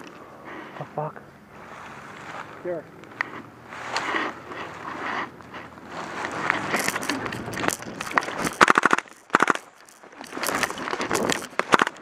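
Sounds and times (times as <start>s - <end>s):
airsoft gun firing bursts: 8.3s - 9.7s, 11.6s - 12.0s.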